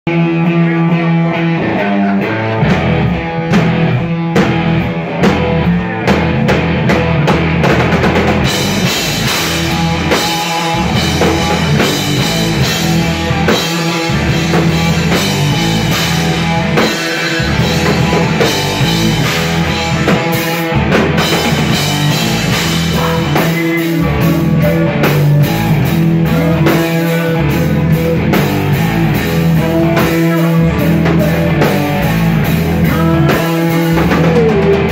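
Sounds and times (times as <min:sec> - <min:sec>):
rock band playing: 0:00.1 - 0:34.9.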